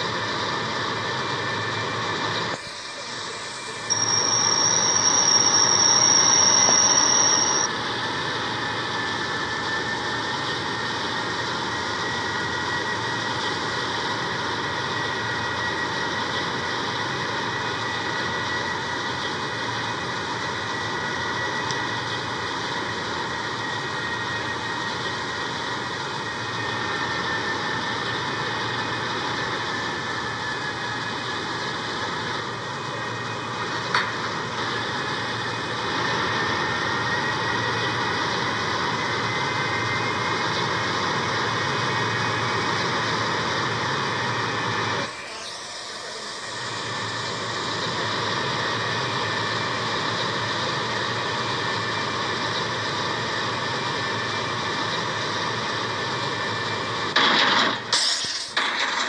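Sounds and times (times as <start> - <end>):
fire roaring: 0.0 - 59.0
high whistle: 2.6 - 7.9, 45.1 - 47.4.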